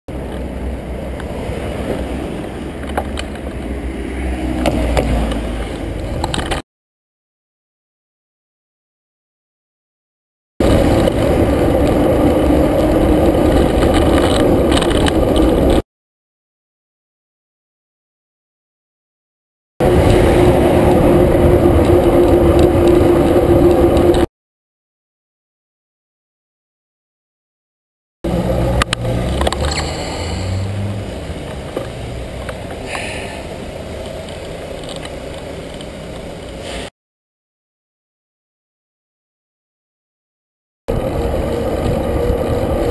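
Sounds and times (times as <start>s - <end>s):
road noise: 0.1s - 6.6s, 10.6s - 15.8s, 19.8s - 24.3s, 28.2s - 36.9s, 40.9s - 42.9s
traffic rumble of engines and tyres: 0.1s - 6.6s, 10.6s - 15.8s, 19.8s - 24.3s, 28.2s - 36.9s, 40.9s - 42.9s
van driving: 0.1s - 6.6s, 10.6s - 15.8s, 19.8s - 24.3s, 28.2s - 36.9s, 40.9s - 42.9s.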